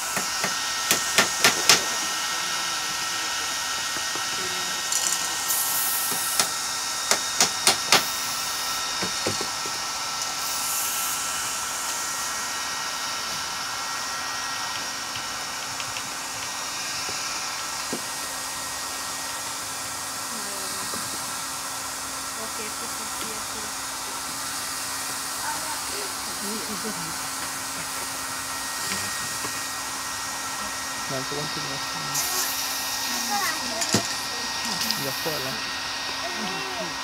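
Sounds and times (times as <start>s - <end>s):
spray paint can hissing: 5.5s - 6.5s.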